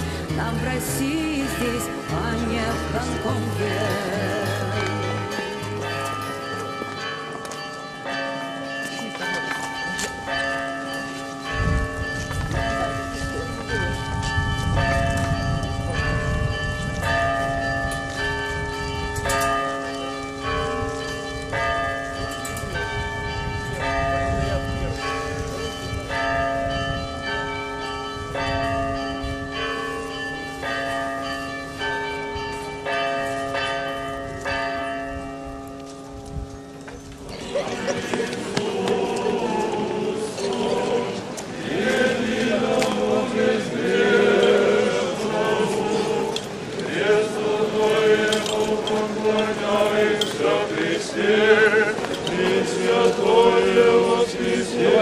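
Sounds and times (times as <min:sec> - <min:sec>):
large bell humming: 0:00.0 - 0:46.6
small church bells ringing: 0:00.0 - 0:55.0
choir singing a chant: 0:37.5 - 0:55.0.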